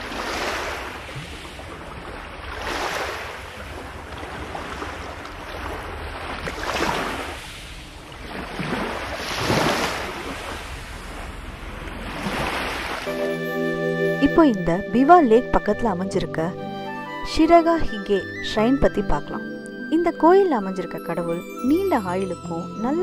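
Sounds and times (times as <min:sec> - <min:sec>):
waves washing onto shore: 0:00.0 - 0:13.2.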